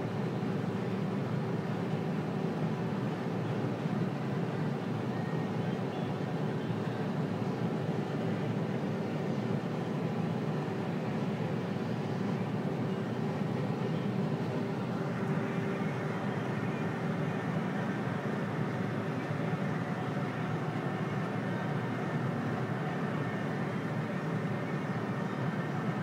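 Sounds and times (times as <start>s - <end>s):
tractor engine hum from cab: 9.2s - 26.0s.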